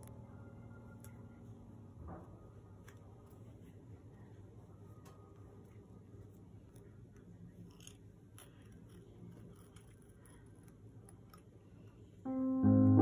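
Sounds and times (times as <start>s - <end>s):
low steady hum: 0.0s - 13.0s
piano music: 12.3s - 13.0s.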